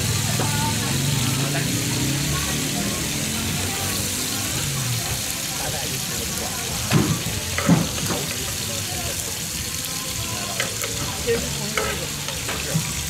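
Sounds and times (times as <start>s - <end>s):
seafood sizzling in butter: 0.0s - 13.0s
metal tongs clacking on pan: 6.9s - 8.4s, 10.4s - 13.0s.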